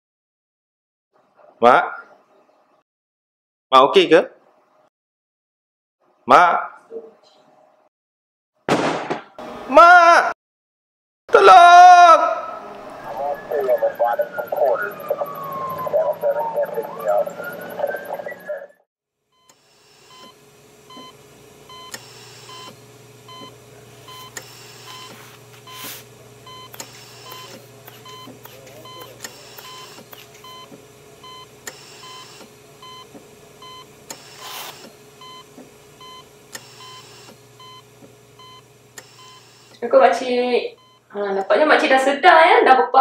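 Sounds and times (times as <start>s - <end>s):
patient monitor beeping: 12.5s - 18.8s, 19.4s - 39.8s, 40.7s - 41.1s
low electrical hum: 19.7s - 42.9s.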